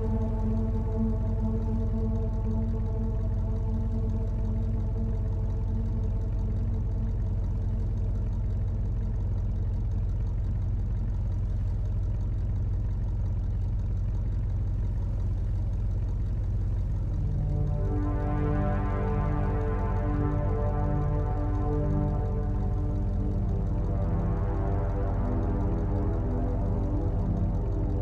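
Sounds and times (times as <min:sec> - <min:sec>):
held synth chord tones: 0:00.0 - 0:09.3, 0:16.8 - 0:28.0
pulsing synth bass drone: 0:00.0 - 0:28.0.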